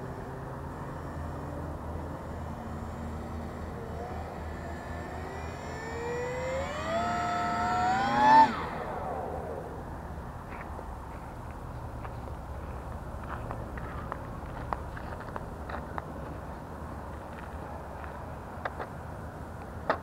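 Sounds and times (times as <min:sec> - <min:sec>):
model airplane motor whine: 0:00.1 - 0:10.4.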